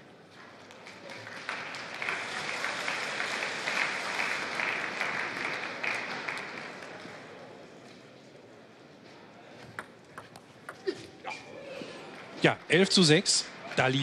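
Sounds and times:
crowd applauding: 0.8 - 7.3.

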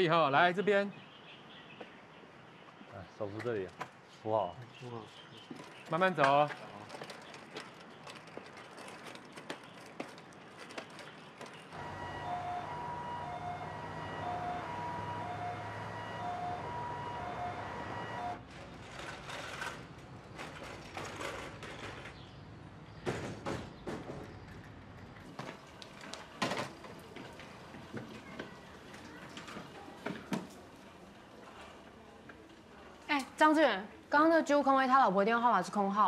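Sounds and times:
ambulance siren wailing: 11.7 - 18.4
low engine rumble: 11.7 - 18.7.

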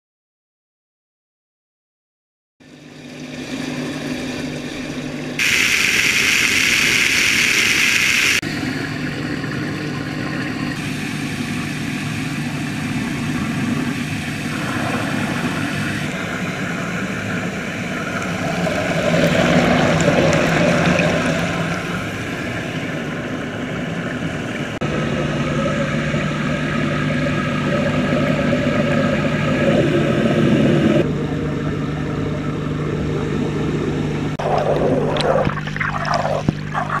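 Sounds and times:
motor hum: 2.6 - 37.0
water churning in a tank: 2.6 - 37.0
loud hiss: 5.4 - 8.4.

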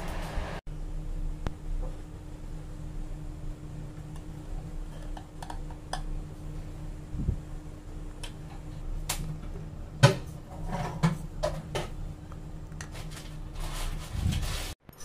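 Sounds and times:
steady low hum: 0.0 - 14.6.

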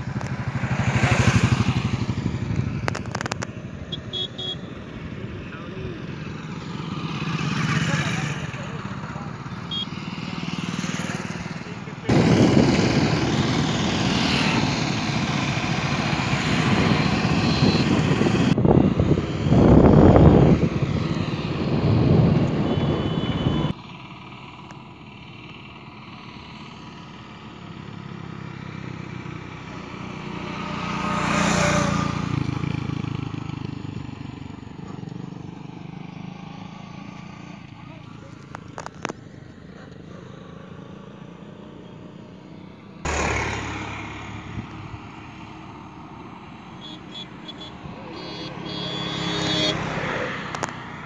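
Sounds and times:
motorcycle engine running: 0.0 - 41.4, 43.0 - 49.8
wind buffeting microphone: 12.1 - 14.0, 15.9 - 23.7.

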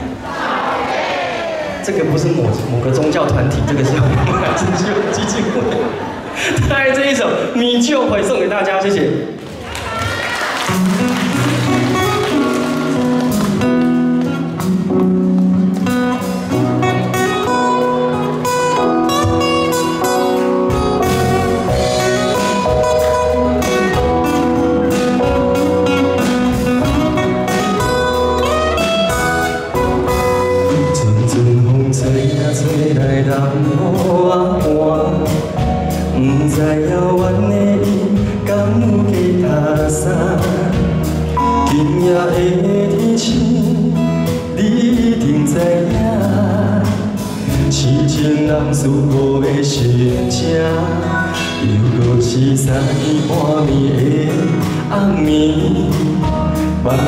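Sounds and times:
guitar accompaniment: 10.0 - 57.0
bass line: 10.7 - 57.0
person singing: 29.8 - 57.0.

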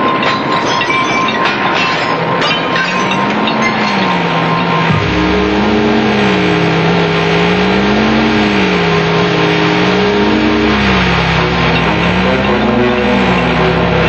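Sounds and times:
wavering electronic hum: 2.2 - 14.0
steady high electronic tones: 2.7 - 14.0
loud rushing noise: 3.0 - 14.0.

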